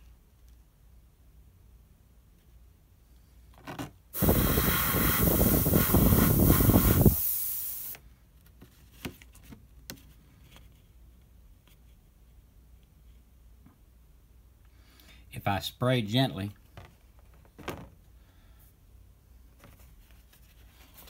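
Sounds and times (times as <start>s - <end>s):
airbrush spraying hiss: 4.2s - 8.0s.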